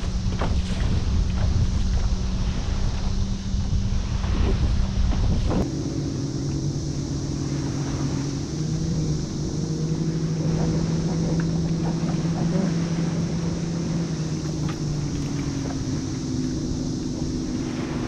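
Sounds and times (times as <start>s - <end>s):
motorboat engine droning: 0.0s - 18.0s.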